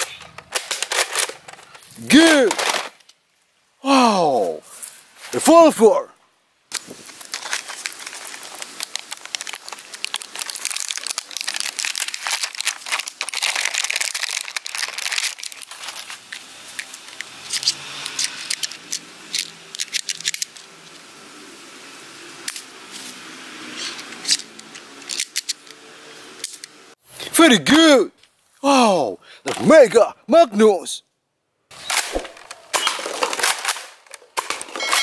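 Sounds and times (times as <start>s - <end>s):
plastic packaging crinkling and tearing: 6.7s - 21.0s, 32.1s - 35.0s
plastic clicks and handling: 15.2s - 20.7s.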